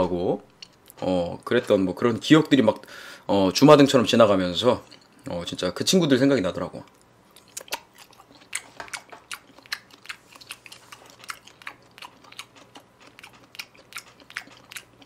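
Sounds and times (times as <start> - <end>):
person chewing with wet mouth smacks: 6.9 - 15.0.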